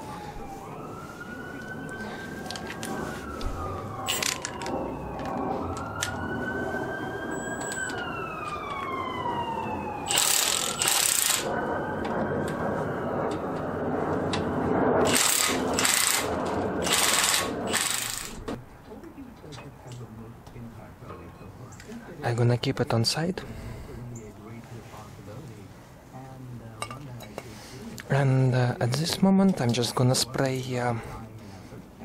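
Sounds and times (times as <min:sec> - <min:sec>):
siren wailing: 0:00.0 - 0:18.8.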